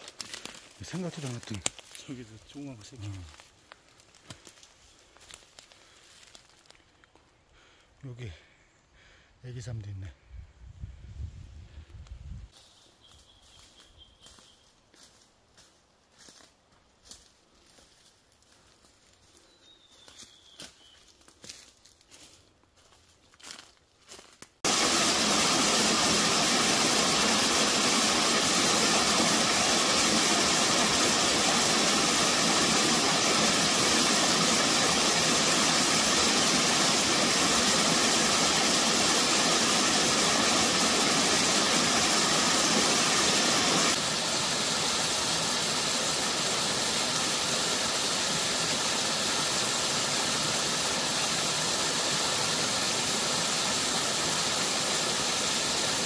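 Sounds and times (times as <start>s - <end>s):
waterfall rushing: 24.6s - 56.0s.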